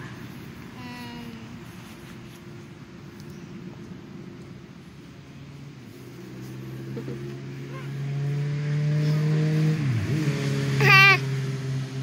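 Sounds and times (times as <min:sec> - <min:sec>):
engine running: 0:03.7 - 0:12.0.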